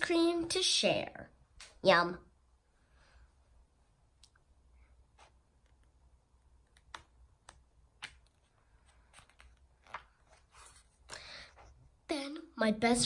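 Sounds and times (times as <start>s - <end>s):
hands handling a book clicks: 6.6s - 10.3s
page turning swish: 8.0s - 11.1s.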